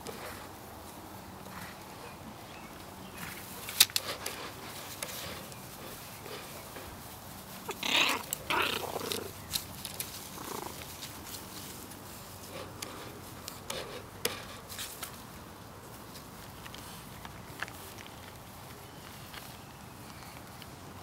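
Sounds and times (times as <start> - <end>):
puppies play-growling: 3.2 - 14.0.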